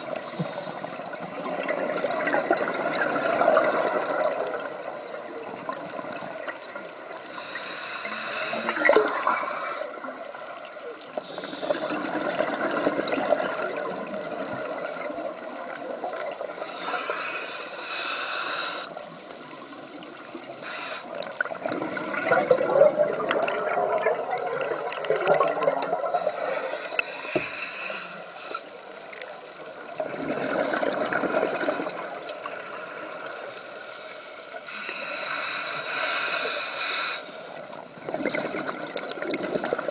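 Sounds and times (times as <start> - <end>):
bubbling exhale: 7.3 - 10.0
regulator hissing inhale: 7.3 - 10.0, 11.2 - 12.0, 14.3 - 15.2, 16.6 - 21.2, 26.1 - 29.0, 33.2 - 37.8.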